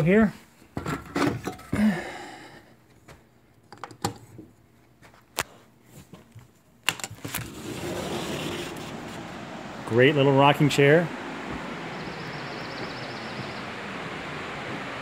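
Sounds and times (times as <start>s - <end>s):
waterfall rushing: 8.0s - 15.0s.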